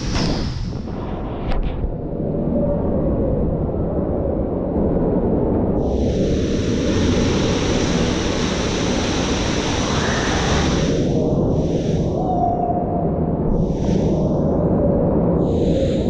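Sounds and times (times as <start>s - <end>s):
rushing water with deep rumble: 3.1s - 12.6s
bright water hiss: 5.8s - 12.1s.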